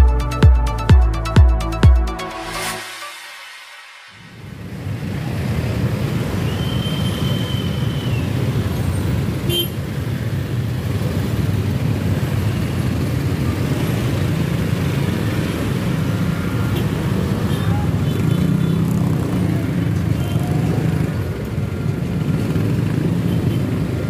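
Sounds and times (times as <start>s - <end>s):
short high tone: 0.7s - 4.8s
traffic engines rumbling: 4.2s - 24.0s.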